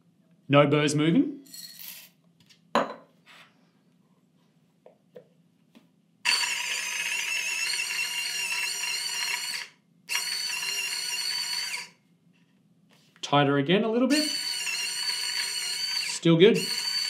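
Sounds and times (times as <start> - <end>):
electric coffee grinder whining: 6.3 - 12.0, 14.1 - 17.0.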